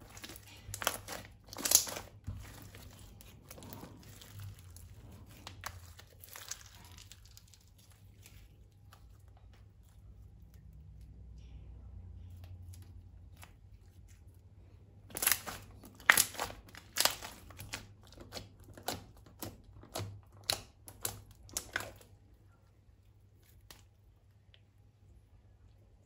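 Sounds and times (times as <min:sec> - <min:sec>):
thin plastic crinkling: 0:00.0 - 0:11.6, 0:12.2 - 0:24.8.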